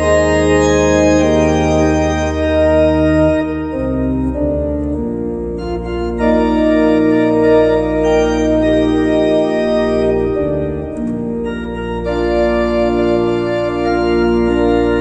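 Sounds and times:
organ playing full chords: 0.0 - 15.0.

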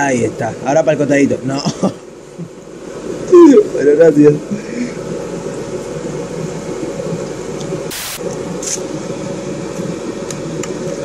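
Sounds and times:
sharp hiss: 7.9 - 8.2.

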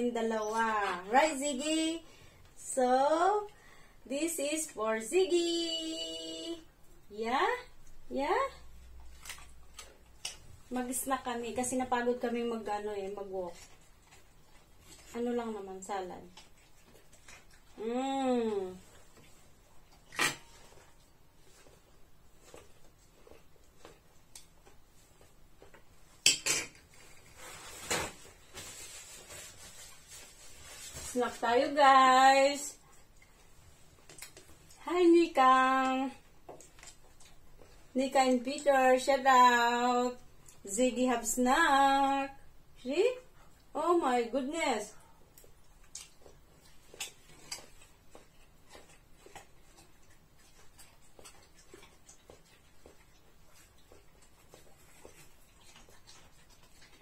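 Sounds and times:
eating clicks and crunches: 45.3 - 57.0.

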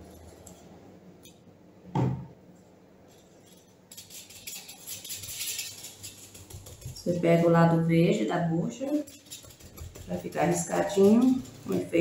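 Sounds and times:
sponge scrubbing a tray: 4.0 - 12.0.

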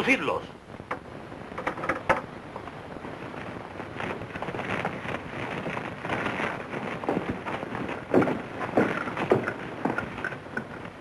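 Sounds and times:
old film soundtrack hiss: 0.0 - 11.0
shuffling footsteps: 3.0 - 11.0.

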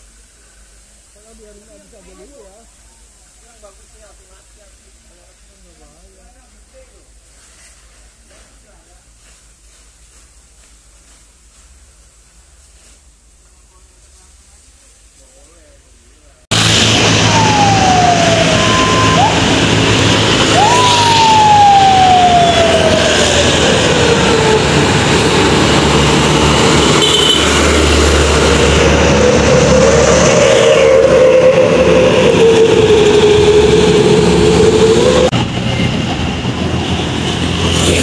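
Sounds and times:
fire truck siren wailing: 16.5 - 35.3
truck engine rumbling: 16.5 - 38.0.

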